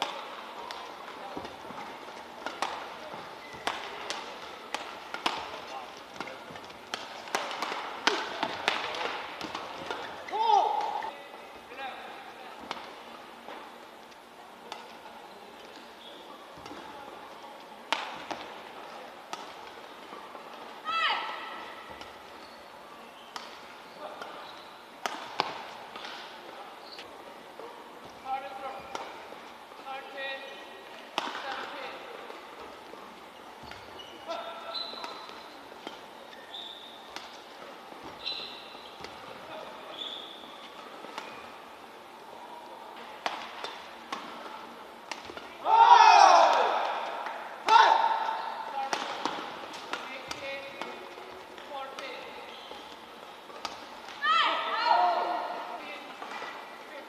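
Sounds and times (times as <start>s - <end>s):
court shoes squeaking: 0.0s - 45.6s, 46.5s - 57.0s
faint arena background: 0.0s - 57.0s
badminton racket hitting shuttlecock: 2.4s - 11.0s.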